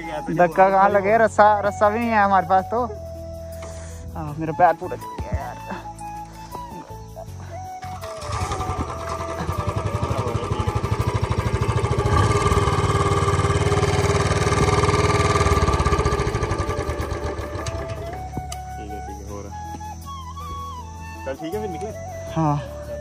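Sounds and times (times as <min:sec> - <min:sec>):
motorcycle engine pulsing: 0:07.8 - 0:19.2.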